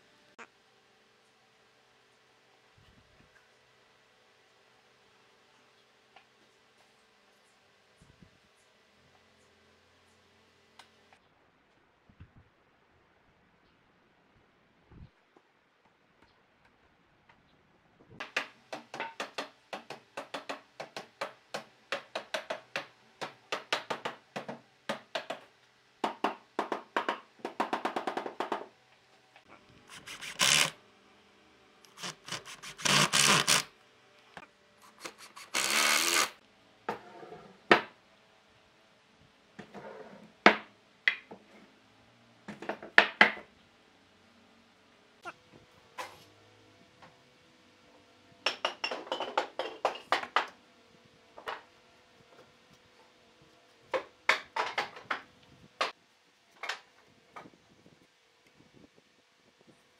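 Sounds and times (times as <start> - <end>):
power driver driving screws: 29.9 - 30.7, 31.9 - 33.7, 34.9 - 36.4.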